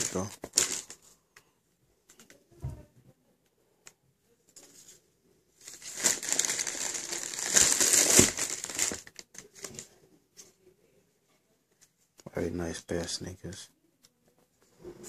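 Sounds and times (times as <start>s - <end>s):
wrapping paper crinkling: 0.0s - 1.1s, 5.6s - 9.9s.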